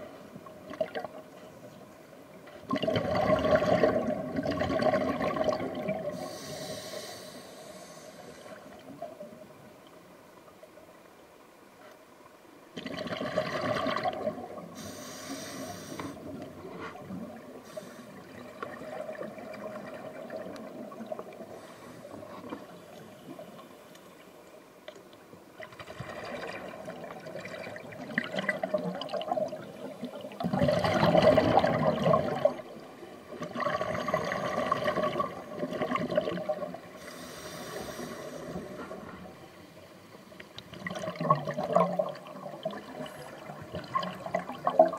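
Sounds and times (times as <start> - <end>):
underwater bubbling exhalation: 2.7 - 6.4, 12.8 - 14.9, 25.8 - 32.7, 33.4 - 39.0, 40.7 - 44.9.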